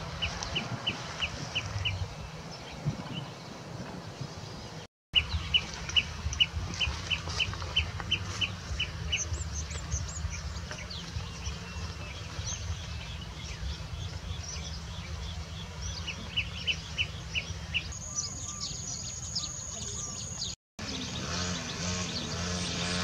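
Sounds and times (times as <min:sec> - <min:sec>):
birds calling: 0:00.0 - 0:23.0
higher bird chirps: 0:15.8 - 0:23.0.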